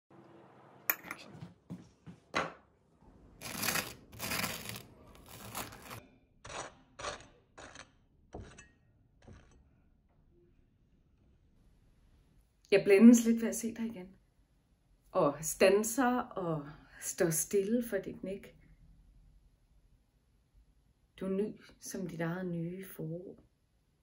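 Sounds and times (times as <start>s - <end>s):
knife scraping butter on toast: 3.4s - 9.6s.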